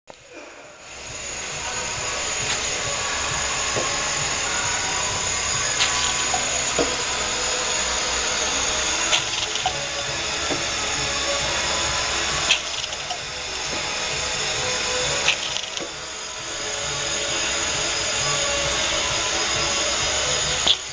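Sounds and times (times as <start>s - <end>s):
bottle-filling machine hissing: 0.8s - 20.9s
bottles clicking against filling heads: 12.4s - 13.9s.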